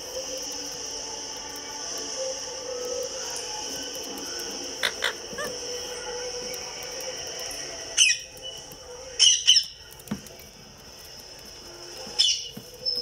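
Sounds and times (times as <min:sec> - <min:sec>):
parakeet squawking: 0:04.7 - 0:06.2, 0:07.9 - 0:08.6, 0:09.2 - 0:09.9, 0:12.1 - 0:13.0.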